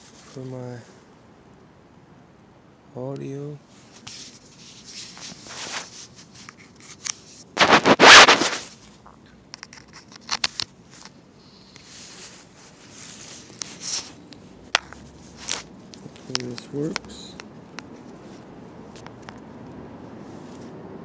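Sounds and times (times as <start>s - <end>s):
microphone handling noise: 7.6s - 9.3s.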